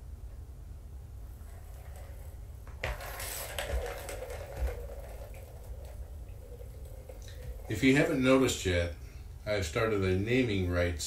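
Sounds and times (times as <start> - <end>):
balls rolling and clicking: 1.2 - 9.0
plastic toy rattling: 1.4 - 8.6.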